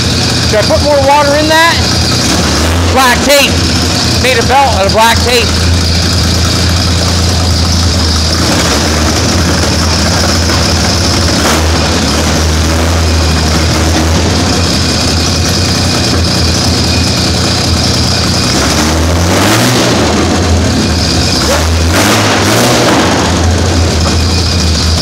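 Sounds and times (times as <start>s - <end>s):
car engine idling and revving: 0.0s - 25.0s.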